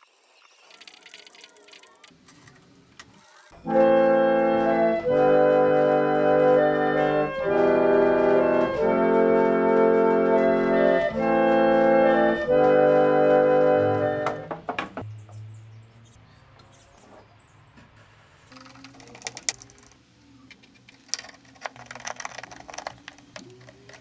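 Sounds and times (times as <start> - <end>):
reed organ chords: 3.6 - 14.4.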